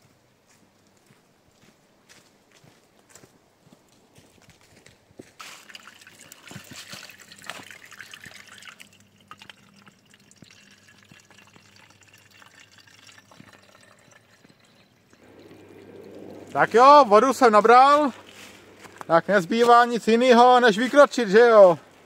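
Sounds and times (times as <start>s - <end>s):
water trickling into container: 5.4s - 20.2s
faint low hum: 8.3s - 20.6s.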